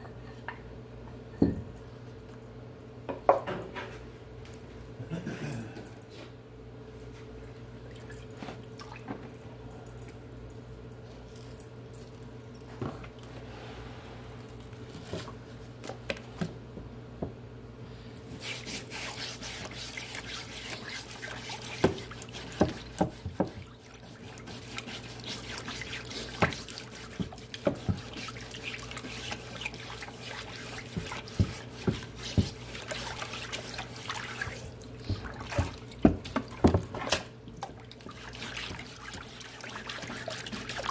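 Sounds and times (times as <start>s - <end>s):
stiff brush scrubbing wood: 18.4s - 35.8s, 38.0s - 40.9s.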